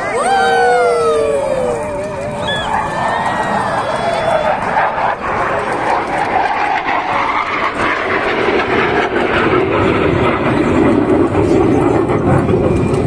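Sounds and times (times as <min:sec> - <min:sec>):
jet engines rushing overhead: 0:00.0 - 0:13.0.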